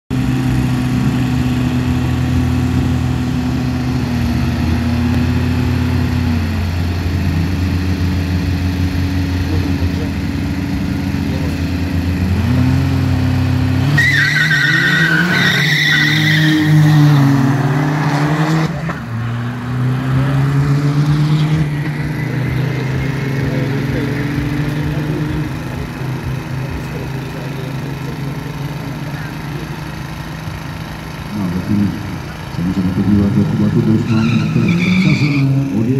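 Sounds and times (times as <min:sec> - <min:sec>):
car engines idling and revving: 0:00.1 - 0:35.9
high tyre squeal: 0:13.7 - 0:20.1, 0:33.6 - 0:35.9.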